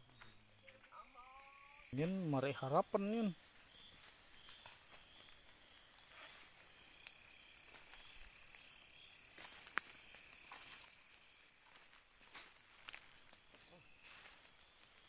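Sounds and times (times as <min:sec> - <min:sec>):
insect chorus drone: 0:00.0 - 0:15.0
footsteps in dry leaves: 0:03.8 - 0:15.0.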